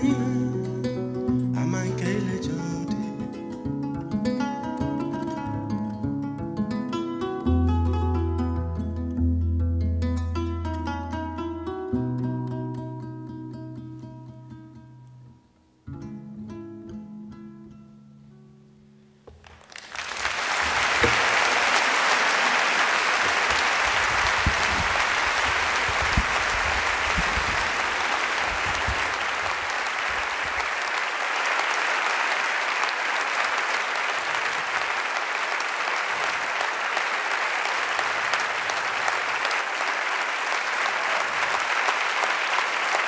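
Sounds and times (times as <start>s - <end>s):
plucked harp-lute notes: 0.0s - 15.3s
audience applause: 19.4s - 43.0s.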